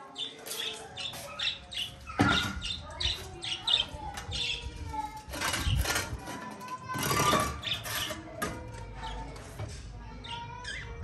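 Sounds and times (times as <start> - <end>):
budgerigars chirping: 0.2 - 4.6.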